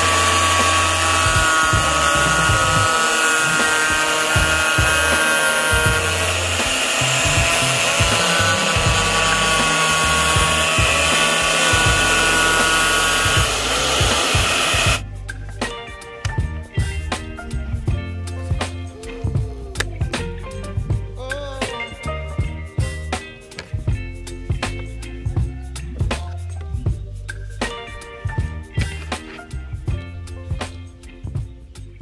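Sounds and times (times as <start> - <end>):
angle grinder cutting plastic: 0.0 - 15.0.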